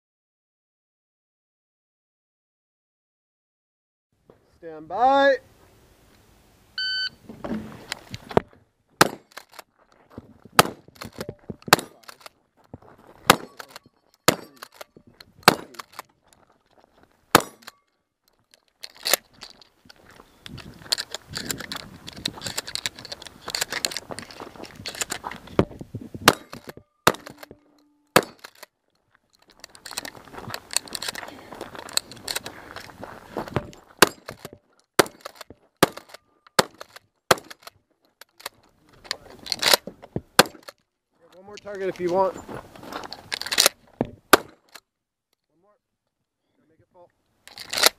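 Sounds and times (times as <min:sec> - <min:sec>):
shot timer beep: 0:06.8 - 0:07.2
shotgun shots: 0:09.0 - 0:09.4, 0:10.6 - 0:12.2, 0:13.3 - 0:14.8, 0:15.4 - 0:15.9, 0:17.3 - 0:17.7, 0:26.2 - 0:28.6, 0:34.0 - 0:37.6, 0:40.4 - 0:40.7, 0:44.3 - 0:44.6.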